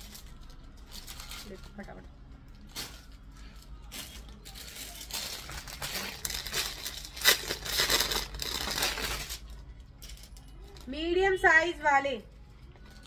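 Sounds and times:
plastic packaging crinkling: 0.0 - 2.0, 2.6 - 9.5.

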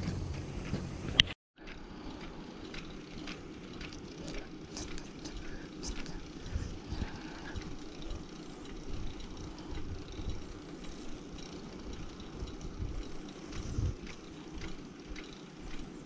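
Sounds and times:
bicycle tyres hissing on asphalt: 1.9 - 16.0
wind gusts on microphone: 12.3 - 14.2.

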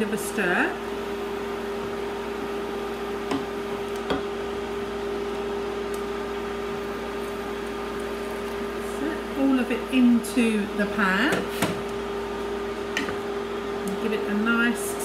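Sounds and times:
kitchen appliance humming: 0.0 - 15.0.

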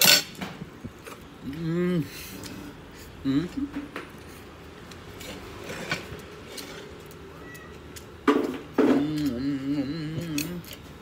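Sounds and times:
man humming: 1.4 - 2.2, 3.2 - 3.9, 9.0 - 10.8.

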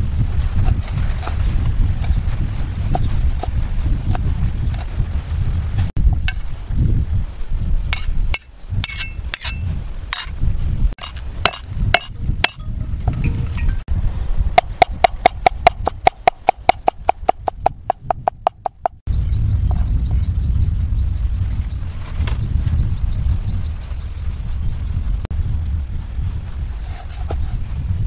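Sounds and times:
cleaver chopping on wooden board: 11.0 - 12.7, 14.6 - 19.0.

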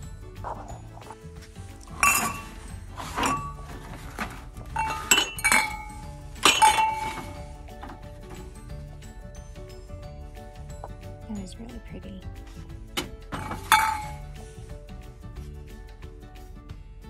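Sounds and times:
faint background music: 0.0 - 17.0
glass and ceramic dishes clinking: 1.8 - 8.6, 13.3 - 14.3.

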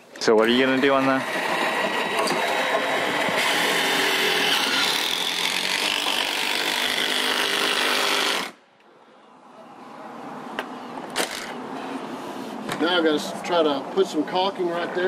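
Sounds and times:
power drill running: 0.5 - 8.6.

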